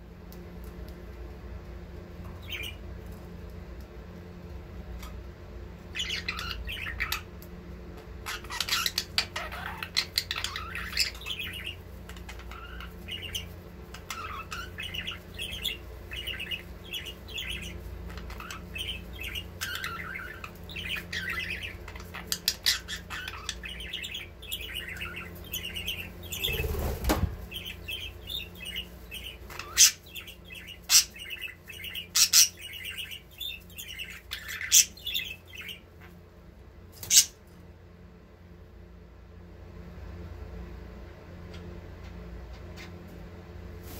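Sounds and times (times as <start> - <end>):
budgerigars chirping: 2.4 - 2.8, 5.9 - 7.3, 8.2 - 36.1, 37.0 - 37.4
wing flapping: 26.3 - 27.6.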